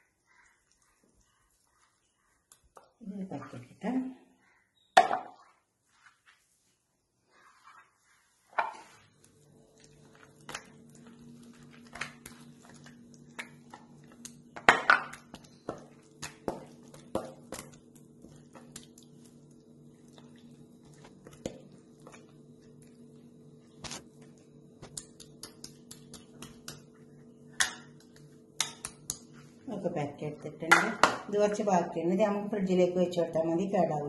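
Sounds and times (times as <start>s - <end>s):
hands working wet paste: 0.1s - 3.7s, 7.3s - 29.9s
steady low hum: 9.1s - 33.4s.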